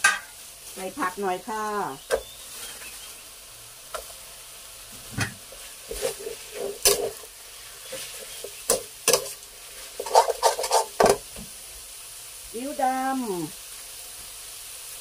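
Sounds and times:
food sizzling in a wok: 0:00.0 - 0:15.0
metal spatula scraping wok: 0:05.0 - 0:11.2.

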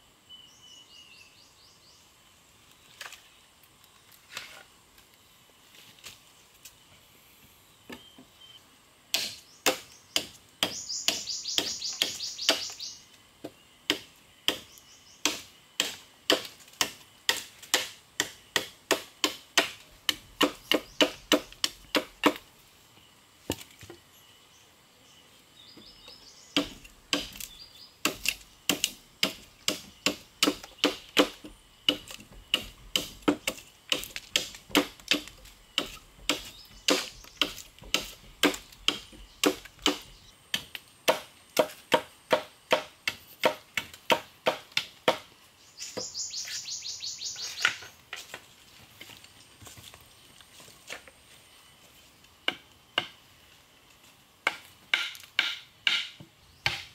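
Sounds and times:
knife chopping wooden stake: 0:09.1 - 0:12.8, 0:13.4 - 0:22.5, 0:26.6 - 0:45.3, 0:54.4 - 0:56.9.

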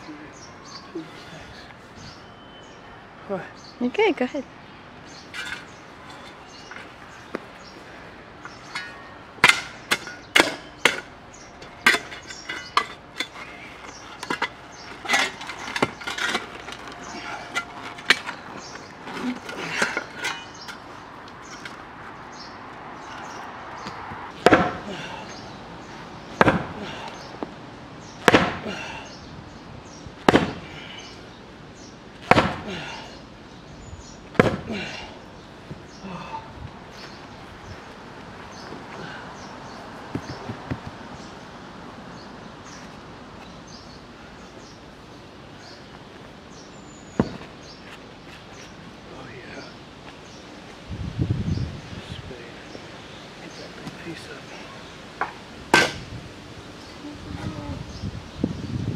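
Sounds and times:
shovel clanking on concrete: 0:05.2 - 0:06.9, 0:08.5 - 0:21.8
sledgehammer blows on concrete: 0:08.5 - 0:18.4, 0:24.4 - 0:25.2, 0:26.3 - 0:27.3, 0:28.2 - 0:29.0, 0:30.2 - 0:31.1, 0:32.2 - 0:33.0, 0:34.3 - 0:35.0, 0:47.2 - 0:47.6, 0:55.2 - 0:56.1.

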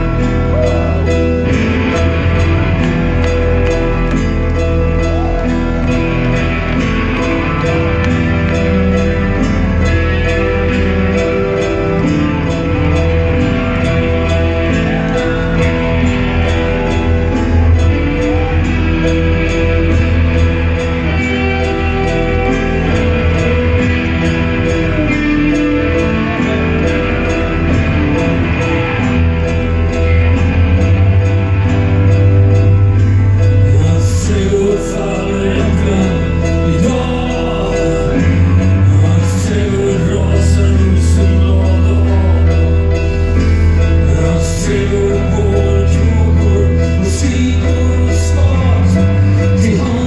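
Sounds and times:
live band playing: 0:00.0 - 0:50.0
man singing: 0:33.3 - 0:50.0.

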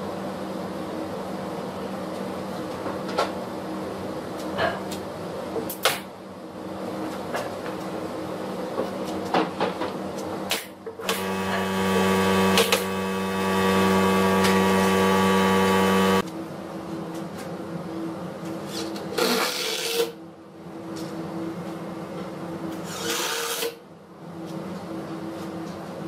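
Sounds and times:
air compressor motor humming: 0:11.0 - 0:16.2.

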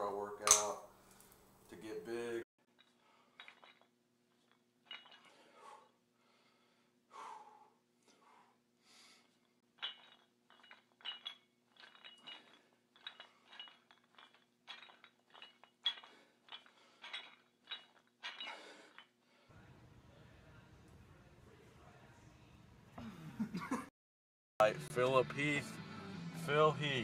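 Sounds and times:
metal dumbbell plates clinking: 0:02.8 - 0:05.6, 0:09.7 - 0:19.2.

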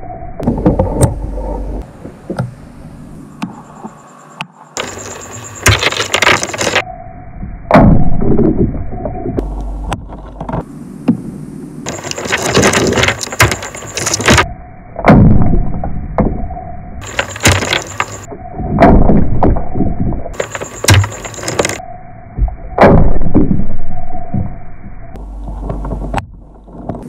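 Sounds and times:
sharp cracks and crunching impacts: 0:04.8 - 0:06.9, 0:09.4 - 0:16.4, 0:17.0 - 0:21.8, 0:22.4 - 0:23.7, 0:25.2 - 0:27.0.

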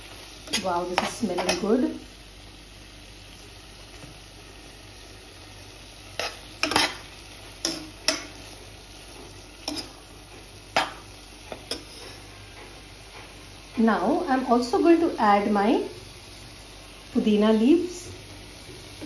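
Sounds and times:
prawns sizzling in a pot: 0:00.0 - 0:19.0
metal spoon scraping and stirring: 0:06.2 - 0:08.4, 0:09.6 - 0:10.0, 0:11.5 - 0:12.3.

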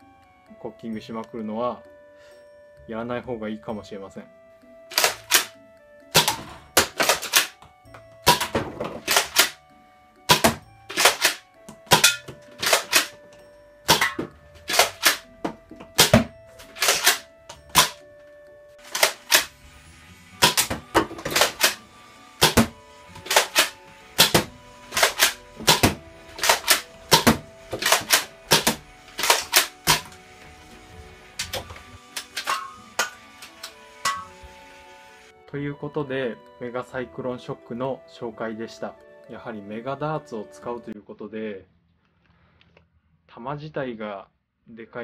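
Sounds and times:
light background music: 0:00.0 - 0:41.9
toy blaster plastic clacks: 0:04.9 - 0:05.5, 0:06.2 - 0:07.6, 0:08.3 - 0:09.6, 0:10.3 - 0:13.2, 0:13.9 - 0:15.2, 0:16.0 - 0:18.0, 0:18.8 - 0:19.5, 0:20.4 - 0:30.2, 0:31.4 - 0:34.3.

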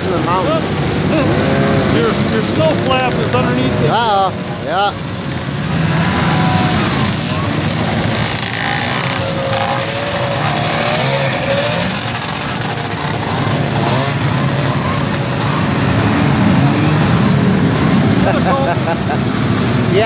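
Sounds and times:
snowmobile engines revving: 0:00.0 - 0:20.0.

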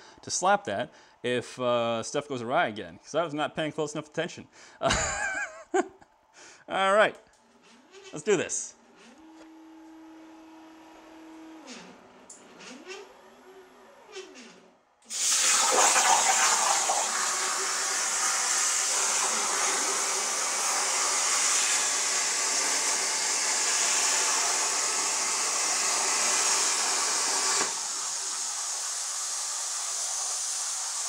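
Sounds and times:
stepper motors whining: 0:07.4 - 0:15.1
plasma torch cutting metal hiss: 0:15.1 - 0:31.0.

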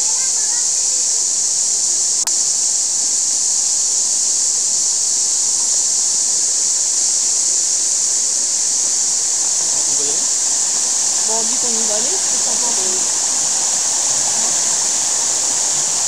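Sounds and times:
stream rushing over stones: 0:08.2 - 0:16.0.

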